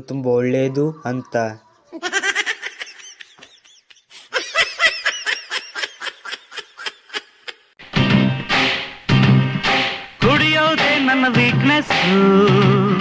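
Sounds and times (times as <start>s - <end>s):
high-pitched giggling: 0.6s - 7.8s
song with music: 7.8s - 13.0s.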